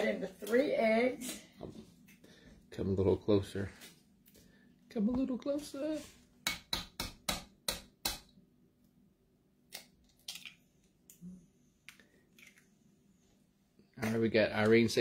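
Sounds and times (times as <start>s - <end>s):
eggshell cracking open: 9.6s - 11.2s, 11.8s - 12.7s.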